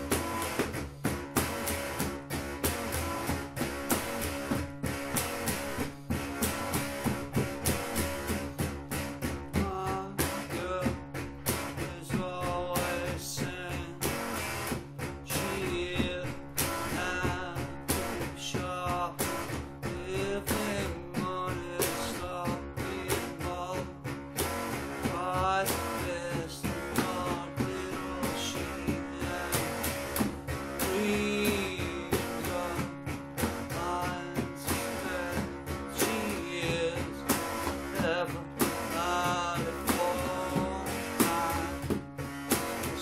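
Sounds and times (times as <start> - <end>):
blues rock song: 0.0 - 43.0
electric guitar: 0.0 - 43.0
man singing: 9.5 - 14.4, 15.2 - 24.1, 24.9 - 42.0, 42.8 - 43.0.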